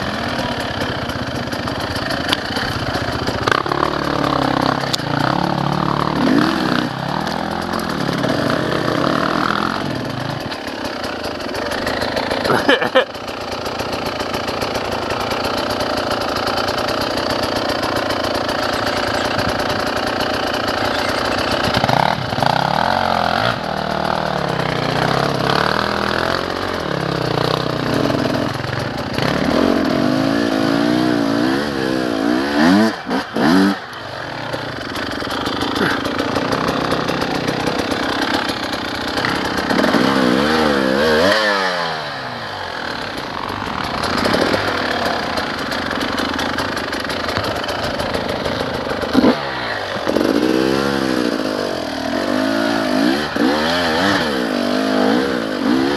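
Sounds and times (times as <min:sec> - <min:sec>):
dirt bike engines revving: 0:00.0 - 0:55.9.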